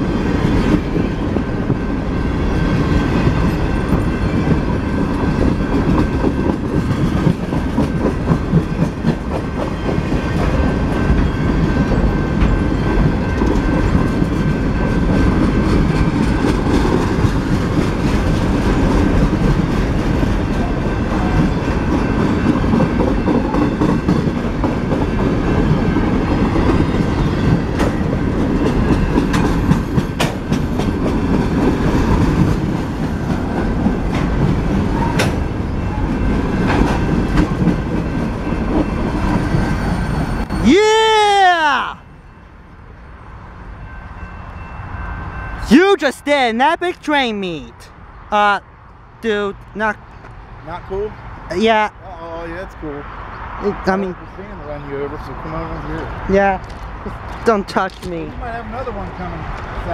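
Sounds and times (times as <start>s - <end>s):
freight train wheels rumbling: 0.0s - 59.9s
wheels clacking over rail joints: 2.8s - 40.5s.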